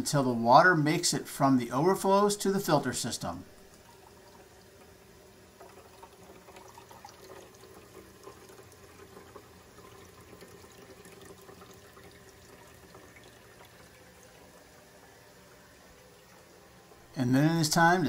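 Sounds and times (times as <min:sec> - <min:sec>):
water trickling and splashing: 0:03.6 - 0:17.1.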